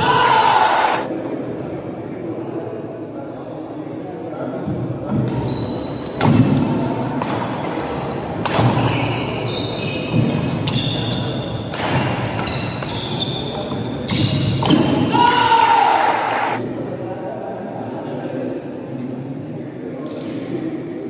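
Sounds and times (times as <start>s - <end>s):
rackets striking shuttlecock: 6.2s - 9.3s
shoes squeaking on wooden floor: 7.5s - 11.7s, 12.3s - 14.4s.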